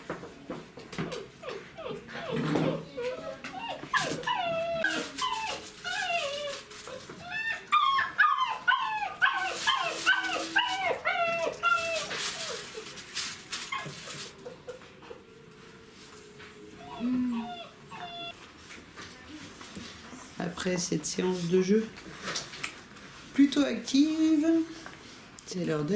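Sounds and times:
puppies yipping and whining: 1.0 - 13.0, 13.6 - 15.3, 16.7 - 18.4.

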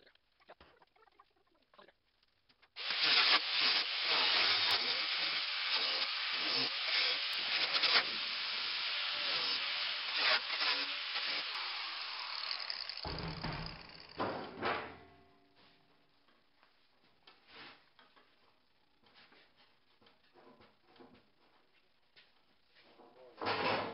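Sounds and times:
angle grinder cutting steel: 2.8 - 14.2.

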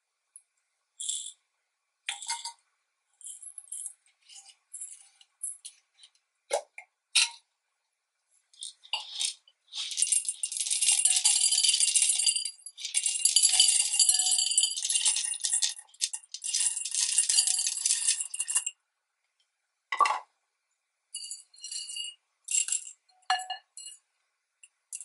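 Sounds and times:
beads and jars clinking: 1.0 - 1.4, 3.2 - 6.1, 8.6 - 18.8, 21.2 - 24.0
beads pouring into glass jar: 8.6 - 18.7.

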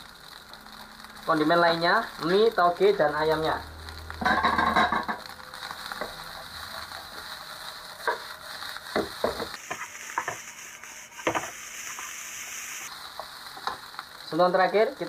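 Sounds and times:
food sizzling in a wok: 0.0 - 15.0
spatula scraping and knocking pan: 4.2 - 5.3, 8.0 - 10.5, 11.2 - 12.1.

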